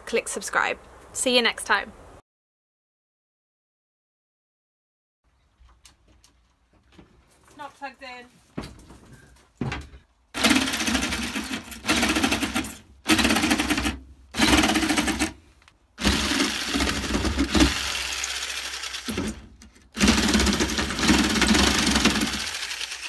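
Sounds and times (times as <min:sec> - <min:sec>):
jigsaw cutting plywood: 0:10.4 - 0:15.4, 0:16.0 - 0:23.0.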